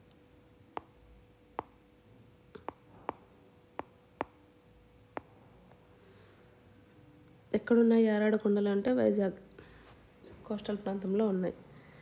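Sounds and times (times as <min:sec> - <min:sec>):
stylus tapping on glass screen: 0:00.8 - 0:01.0, 0:02.6 - 0:04.4, 0:05.2 - 0:05.4.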